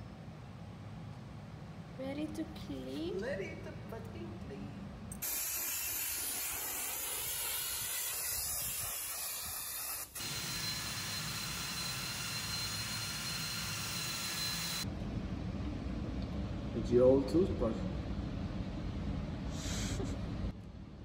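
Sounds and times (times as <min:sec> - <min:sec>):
blast gun hissing: 0:05.2 - 0:10.9
high steady whistle: 0:05.2 - 0:14.8.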